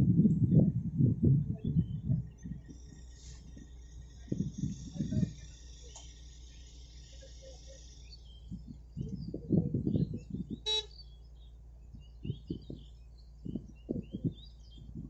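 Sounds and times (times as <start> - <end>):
excavator idling: 1.4 - 15.0
birds chirping: 1.5 - 15.0
short horn toot: 10.6 - 10.9.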